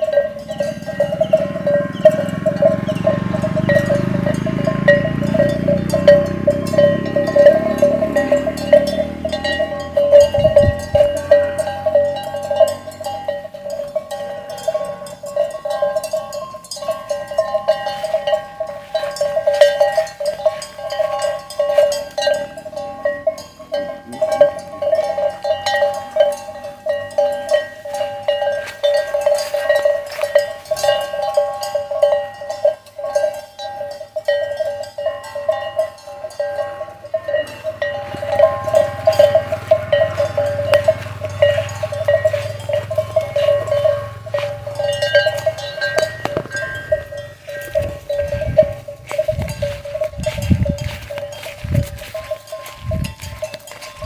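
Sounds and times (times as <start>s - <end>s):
cowbell clanking: 0.0s - 54.0s.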